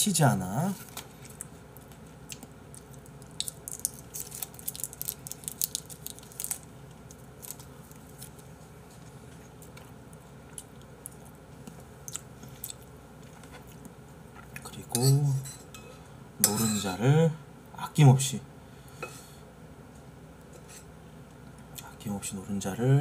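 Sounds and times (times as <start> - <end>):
plastic wrapper crinkling and tearing: 2.8 - 8.5.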